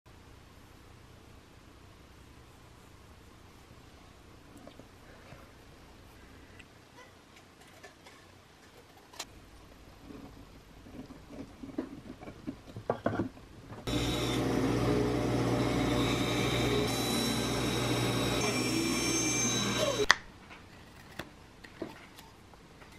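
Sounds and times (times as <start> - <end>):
band saw cutting wood: 13.9 - 20.1.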